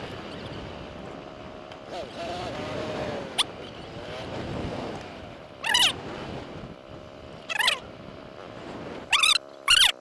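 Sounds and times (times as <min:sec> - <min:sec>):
animal wavering calls: 0:05.6 - 0:06.0, 0:07.5 - 0:07.9, 0:09.1 - 0:10.0.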